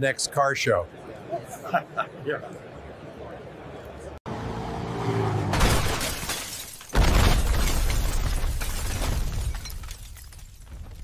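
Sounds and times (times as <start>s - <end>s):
car crash with shattering: 5.5s - 11.0s.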